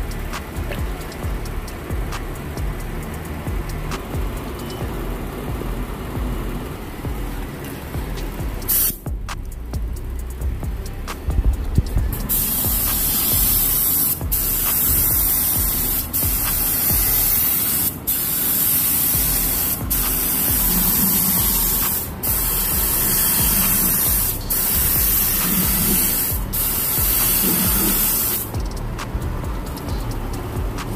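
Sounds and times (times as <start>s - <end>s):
paint spray gun hissing: 8.7s - 9.0s, 12.2s - 29.1s.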